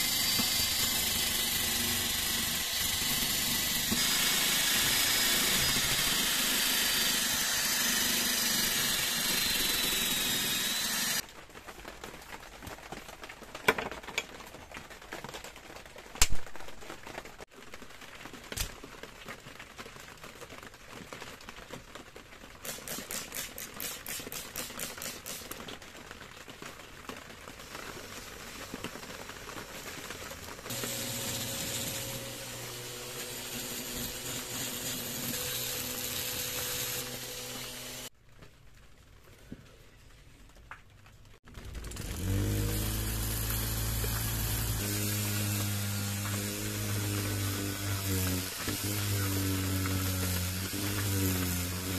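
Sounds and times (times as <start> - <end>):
small electric motor humming: 0.0 - 11.2, 30.7 - 38.1, 42.0 - 51.9.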